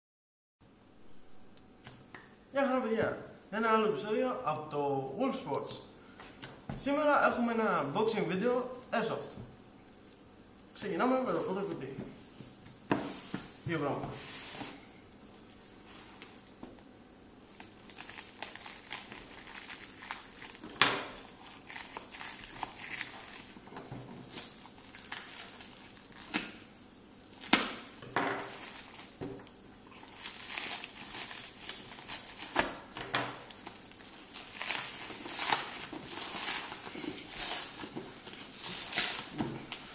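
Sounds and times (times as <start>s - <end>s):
plastic wrapping crinkling: 17.4s - 26.7s, 27.3s - 39.9s.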